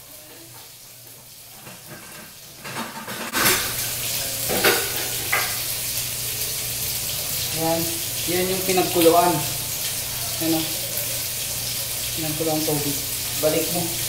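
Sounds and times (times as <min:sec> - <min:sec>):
metal cooking pot clanks: 0:01.7 - 0:03.8, 0:04.5 - 0:05.6.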